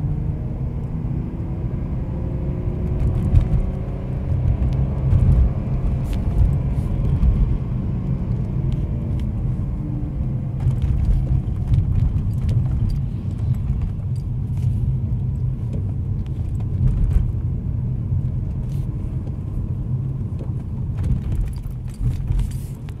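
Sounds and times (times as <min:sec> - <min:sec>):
car engine revving down: 0:00.0 - 0:14.2.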